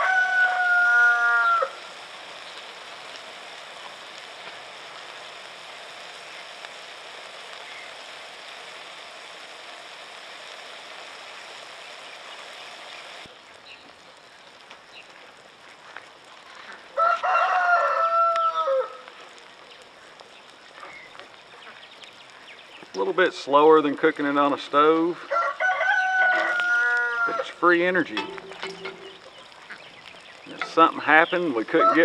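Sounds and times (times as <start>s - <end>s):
rooster crowing: 0.0s - 2.0s, 16.9s - 19.1s, 25.2s - 27.6s, 31.6s - 32.0s
sausage sizzling in a frying pan: 0.0s - 32.0s.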